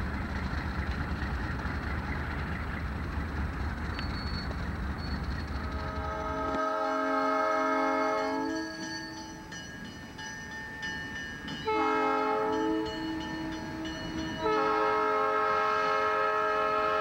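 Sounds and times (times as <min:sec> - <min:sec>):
locomotive rumble: 0:00.0 - 0:17.0
locomotive air horn blasts: 0:05.7 - 0:08.8, 0:11.7 - 0:17.0.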